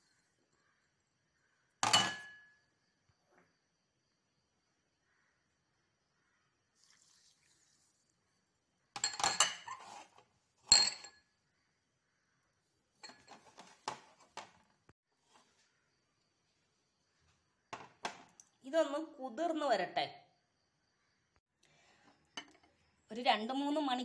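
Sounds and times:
bowls clinking together: 1.8 - 2.5, 9.0 - 9.8, 10.7 - 11.2.

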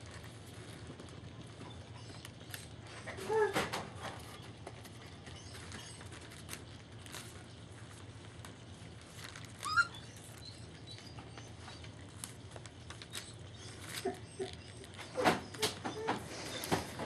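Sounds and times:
newspaper rustling: 4.2 - 17.0
puppy squeak: 5.3 - 6.1, 9.5 - 11.8, 12.8 - 17.0.

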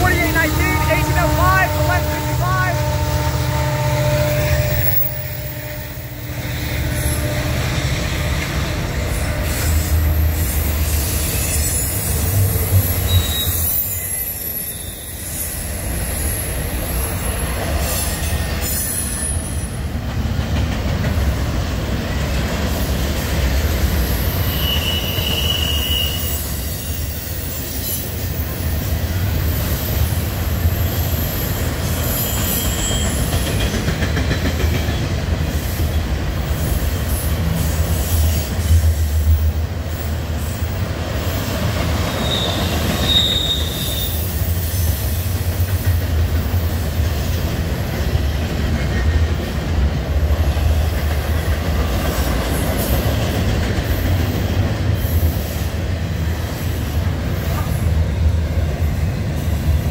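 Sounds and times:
train wheels rumbling on rail: 0.0 - 59.9
high wheel squeal: 9.2 - 17.4, 24.2 - 28.2, 30.9 - 33.4, 42.1 - 45.0.

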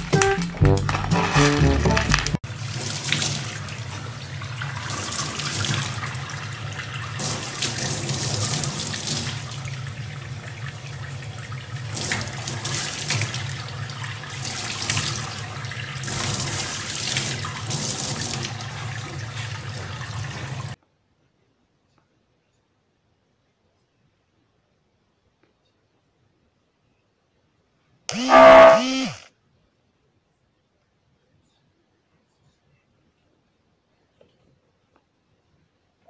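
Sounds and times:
brief music: 0.0 - 2.4.

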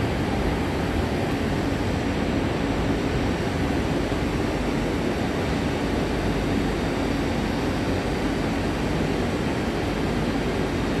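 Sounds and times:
electric train rumbling in tunnel: 0.0 - 11.0.

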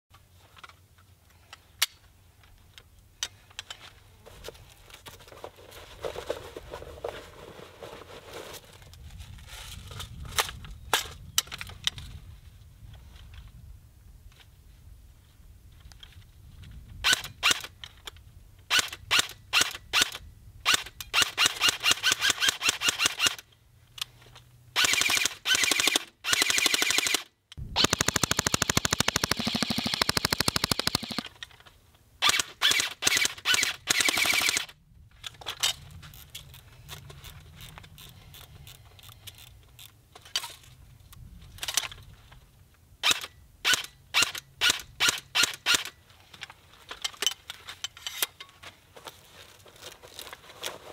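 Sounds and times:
airsoft rifle firing: 24.8 - 31.2, 32.2 - 34.7.

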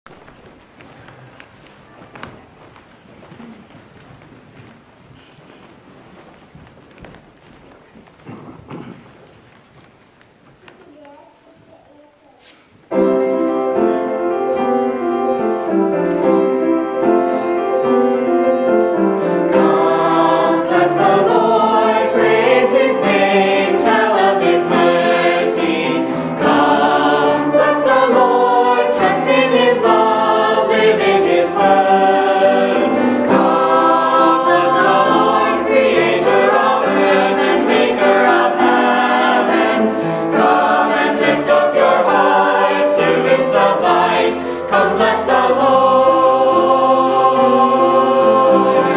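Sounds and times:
choir singing a hymn: 12.9 - 48.9.

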